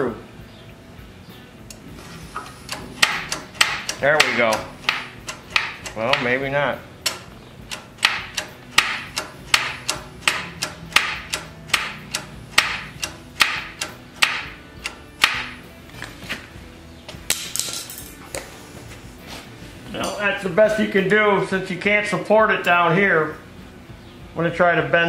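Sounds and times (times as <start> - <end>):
sharp metallic taps: 2.4 - 6.4, 7.0 - 15.6.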